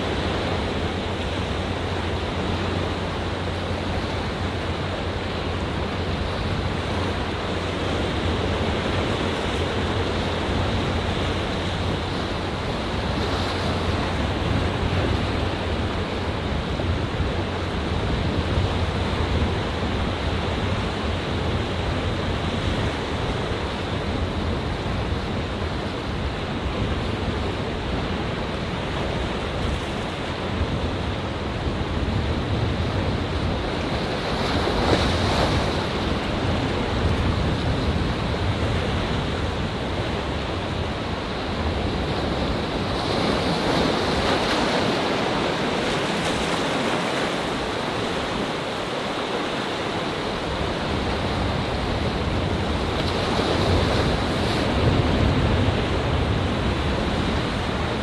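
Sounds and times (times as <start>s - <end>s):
waves breaking on rocks: 31.9s - 58.0s.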